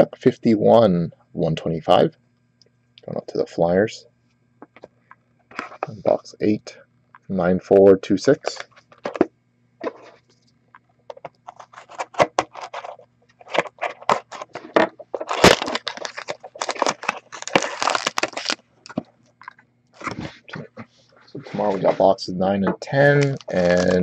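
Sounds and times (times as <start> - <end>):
cardboard box opened: 11.5 - 18.6
foil pack rustling: 11.5 - 18.6, 23.0 - 24.0
cellophane wrap crackling and tearing: 11.5 - 19.0, 23.0 - 24.0.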